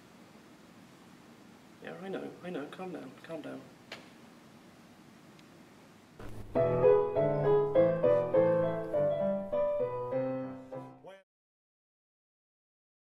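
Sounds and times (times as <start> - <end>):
keyboard tune: 6.2 - 11.1.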